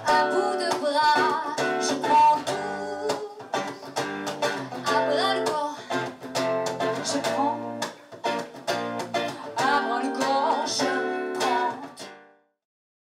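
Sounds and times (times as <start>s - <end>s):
woman singing: 0.0s - 3.9s, 4.7s - 6.0s, 7.0s - 7.9s, 9.3s - 12.0s
acoustic guitar strumming: 0.0s - 12.4s.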